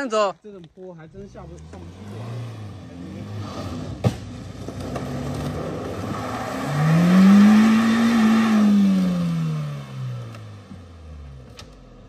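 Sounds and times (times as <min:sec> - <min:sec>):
car engine revving hard: 0:01.3 - 0:10.7
wheels spinning on dirt: 0:03.2 - 0:09.0.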